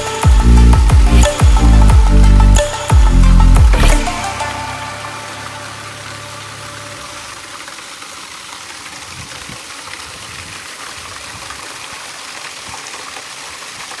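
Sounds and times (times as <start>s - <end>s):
water gushing from pipe: 3.9s - 14.0s
water splashing on metal: 4.3s - 14.0s.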